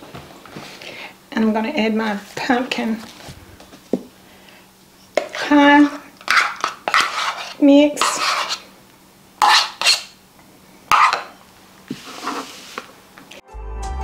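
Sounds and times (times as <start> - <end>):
metal spoon scraping cup: 5.2 - 8.6, 9.4 - 10.1, 10.9 - 11.4.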